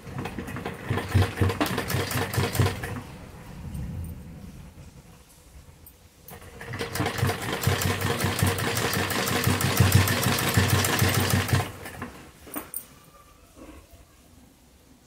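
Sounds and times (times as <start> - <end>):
sewing machine stitching: 0.0 - 3.0, 6.3 - 12.2.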